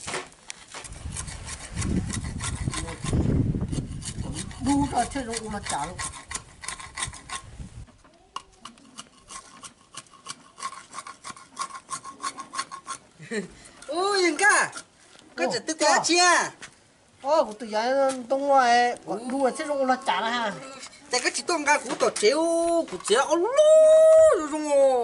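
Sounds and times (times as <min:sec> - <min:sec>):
machete scraping wooden board: 0:00.0 - 0:13.1, 0:20.5 - 0:23.3.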